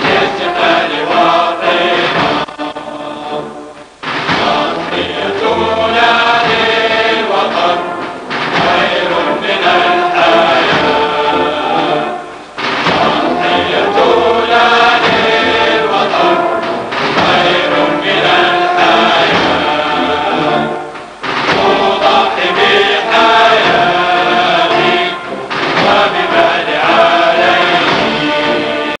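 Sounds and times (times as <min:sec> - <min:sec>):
choir singing with music: 0:00.0 - 0:29.0.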